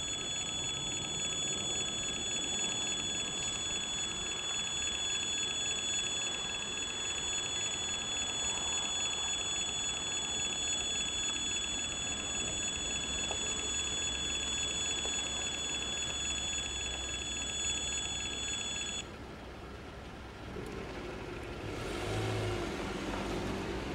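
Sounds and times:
level crossing alarm tone: 0.0 - 19.0.

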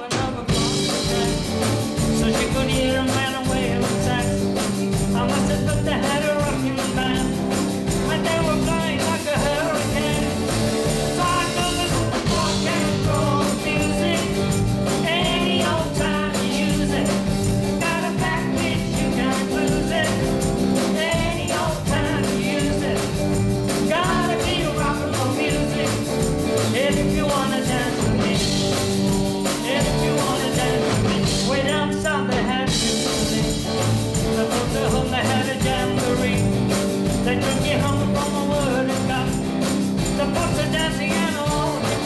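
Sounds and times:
live rock band playing: 0.0 - 42.0
woman singing: 2.2 - 10.4, 11.1 - 23.2, 23.8 - 36.5.

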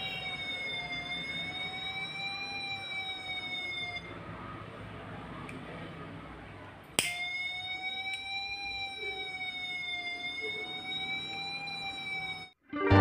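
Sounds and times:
buzzy electronic alarm tone: 0.0 - 1.5.

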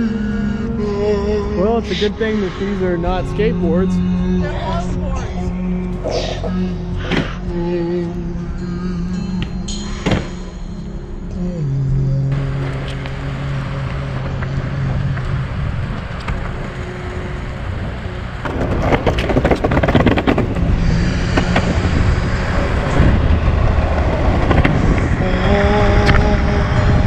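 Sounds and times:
low hum: 0.0 - 27.0
longboard wheels rolling on pavement: 12.4 - 27.0.

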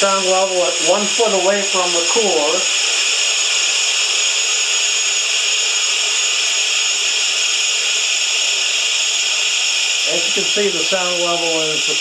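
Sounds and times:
high-pitched hiss of rushing air: 0.1 - 5.7.

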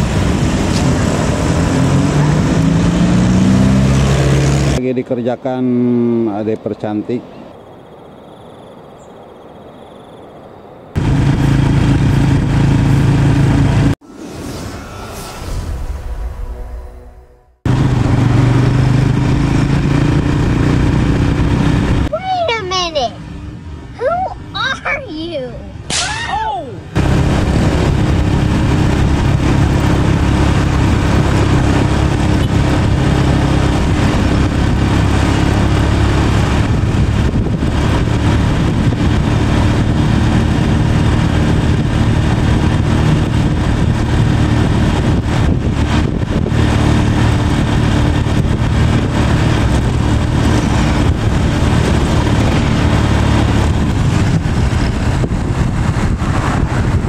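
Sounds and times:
wind noise: 0.0 - 4.8, 10.9 - 25.0, 25.6 - 57.0
vehicle engine running: 0.0 - 5.0, 10.9 - 14.0, 17.6 - 25.0, 26.9 - 57.0
road noise: 0.0 - 57.0.

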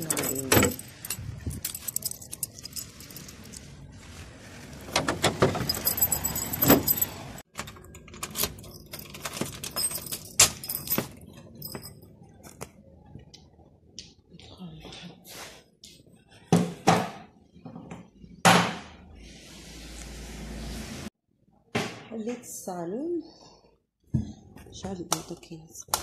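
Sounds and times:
key working in lock: 0.0 - 3.6, 5.6 - 10.9
keys jangling: 0.0 - 3.7, 5.5 - 12.1.

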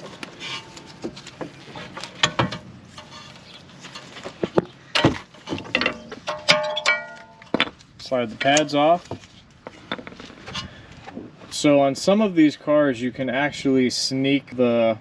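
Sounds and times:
metal and plastic parts clinking: 4.0 - 7.8.

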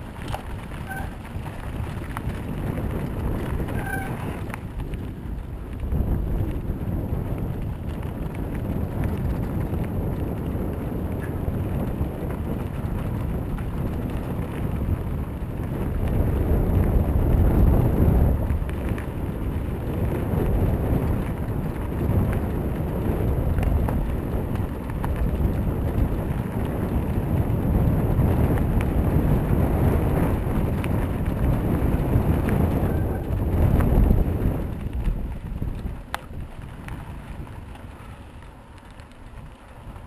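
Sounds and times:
wind buffeting microphone: 0.0 - 40.0
light ticks: 34.7 - 37.0.

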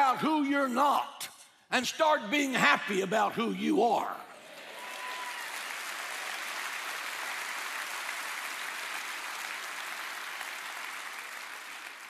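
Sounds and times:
congregation applauding: 4.3 - 12.0.

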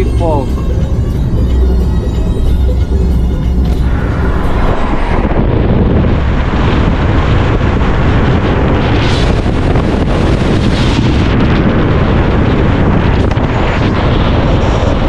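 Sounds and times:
background music: 0.0 - 5.6
road noise: 0.0 - 15.0
wind buffeting microphone: 0.0 - 15.0.

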